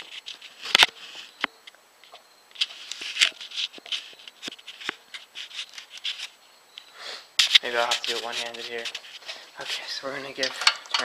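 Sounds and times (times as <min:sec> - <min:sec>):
camera handling rubbing and rustling: 0:00.0 - 0:06.8, 0:07.4 - 0:09.9.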